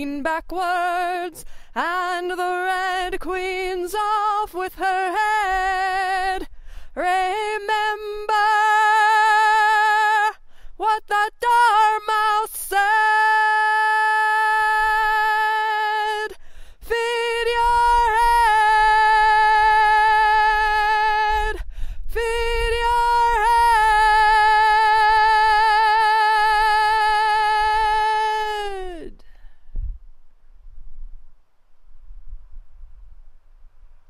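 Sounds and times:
woman singing a cappella: 0:00.0 - 0:29.3.

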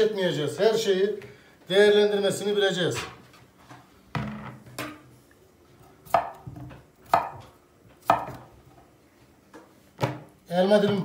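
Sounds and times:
knife cutting potato on board: 0:06.0 - 0:08.5.

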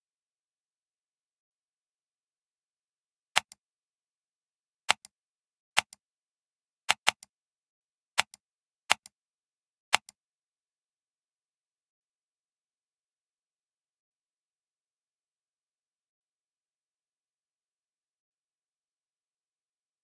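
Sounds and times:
computer mouse button clicking: 0:03.4 - 0:03.6, 0:04.9 - 0:05.1, 0:06.9 - 0:07.3, 0:08.2 - 0:09.1, 0:09.9 - 0:10.2.

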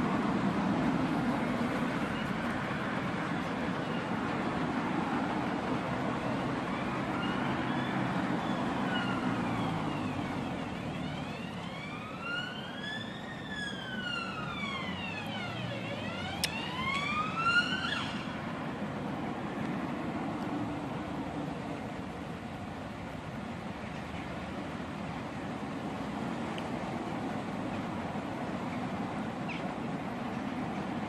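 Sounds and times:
siren wailing: 0:07.0 - 0:18.4.

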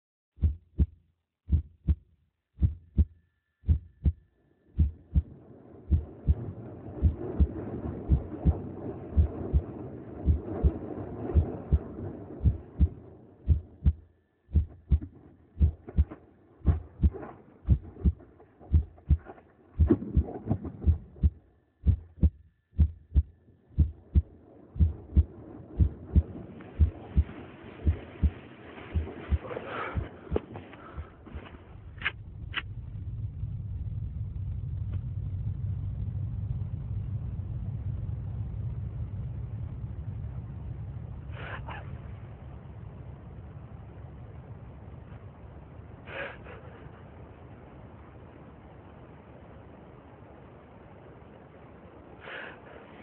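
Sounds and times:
heartbeat thumps: 0:00.4 - 0:04.2, 0:04.8 - 0:05.3, 0:05.9 - 0:31.2
steady background hum: 0:02.6 - 0:53.0.

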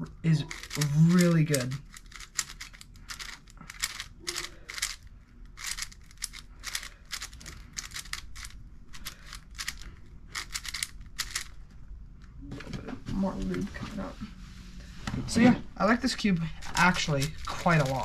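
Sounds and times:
puzzle cube plastic clicks: 0:00.5 - 0:11.6, 0:16.7 - 0:18.0.

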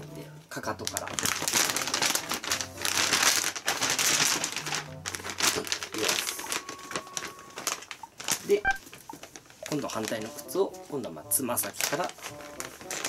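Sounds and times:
background music: 0:00.0 - 0:13.0
plastic bag crinkling: 0:00.6 - 0:13.0.

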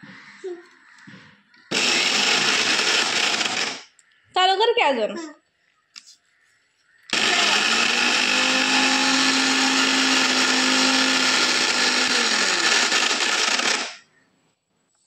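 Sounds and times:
mixer grinder whirring: 0:01.7 - 0:03.8, 0:07.1 - 0:14.0.

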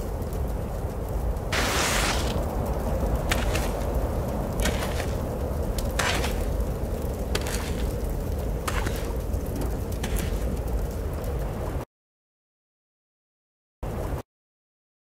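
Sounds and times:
low desert wind: 0:00.0 - 0:11.9, 0:13.8 - 0:14.2
footsteps in sand: 0:01.5 - 0:02.5, 0:03.2 - 0:10.7.

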